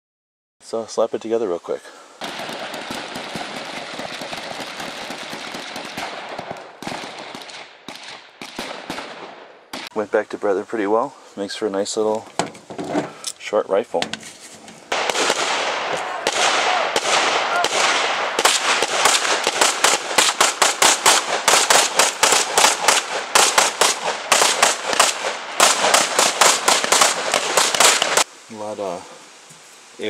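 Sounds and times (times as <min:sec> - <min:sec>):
rapid gunfire: 0:02.2 - 0:09.9, 0:14.9 - 0:28.3.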